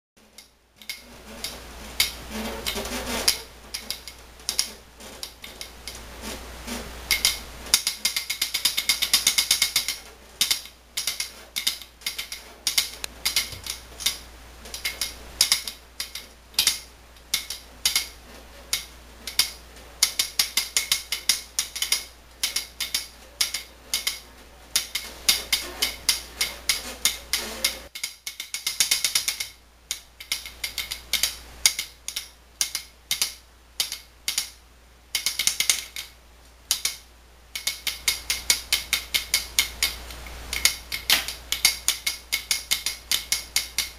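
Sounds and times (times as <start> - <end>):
plastic toy rattling clicks: 7.1 - 34.6, 35.2 - 36.1, 36.7 - 37.0, 37.6 - 43.9.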